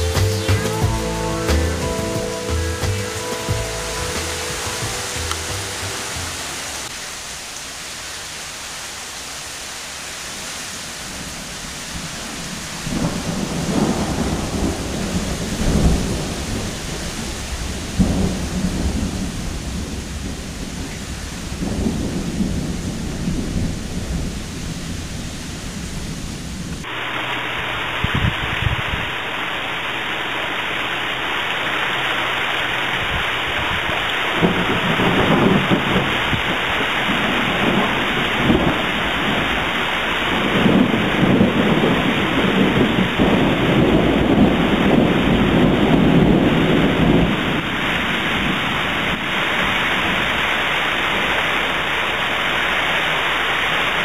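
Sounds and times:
steady rain: 0:00.0 - 0:54.0
wind: 0:00.0 - 0:54.0
low thunder rumbles: 0:11.9 - 0:26.9, 0:33.0 - 0:50.4.

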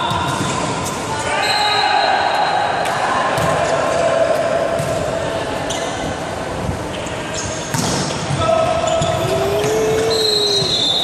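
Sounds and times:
hubbub of voices: 0:02.0 - 0:11.0
sneakers squeaking on court: 0:06.9 - 0:11.0
person shouting: 0:09.2 - 0:10.7.

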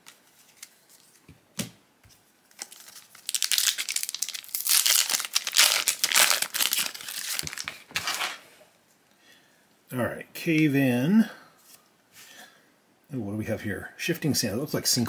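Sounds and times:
foil wrapper crinkling and tearing: 0:02.5 - 0:08.4.

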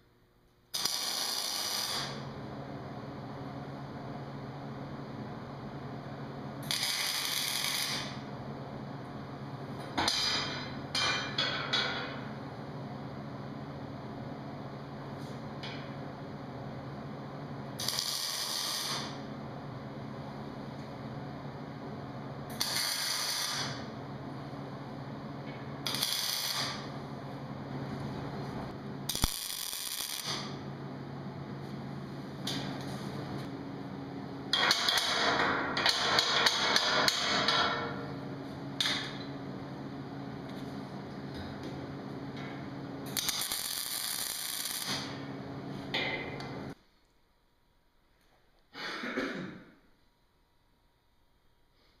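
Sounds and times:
short welding tacks: 0:00.7 - 0:02.3, 0:06.6 - 0:08.2, 0:17.8 - 0:19.2, 0:22.5 - 0:23.9, 0:25.8 - 0:26.9, 0:29.1 - 0:30.6, 0:43.1 - 0:45.2
welder crackling: 0:00.7 - 0:02.3, 0:06.6 - 0:08.3, 0:17.8 - 0:19.2, 0:22.5 - 0:23.9, 0:25.8 - 0:27.0, 0:29.1 - 0:30.6, 0:43.1 - 0:45.2.

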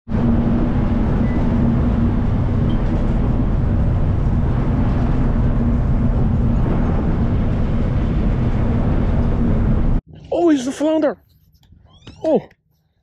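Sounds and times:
rushing noise: 0:00.1 - 0:10.0
ship engines droning: 0:00.1 - 0:10.1.

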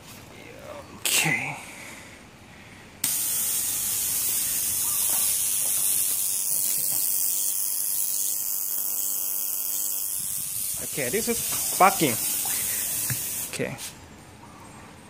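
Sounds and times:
burner igniters sparking: 0:03.0 - 0:13.7.

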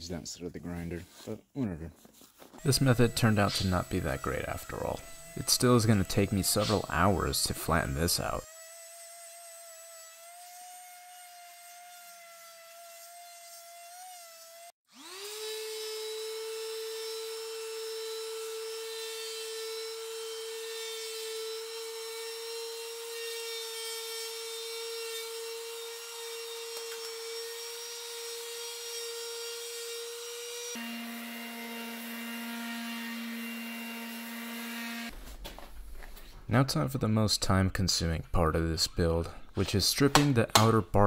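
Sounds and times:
palm sander whining on wood: 0:02.6 - 0:35.1.

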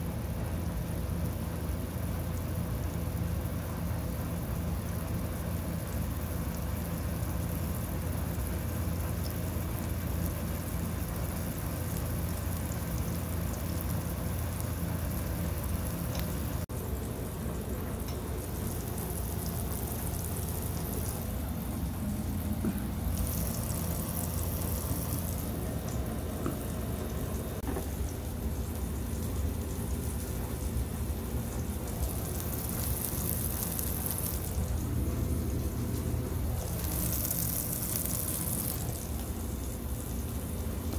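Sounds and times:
patty sizzling in oil: 0:00.0 - 0:40.9
steady low hum: 0:00.0 - 0:40.9.

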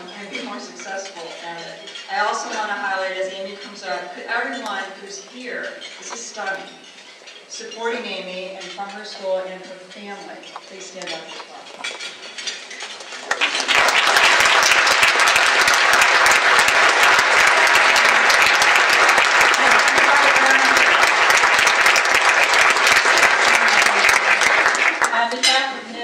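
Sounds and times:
audience applauding: 0:12.8 - 0:25.2.

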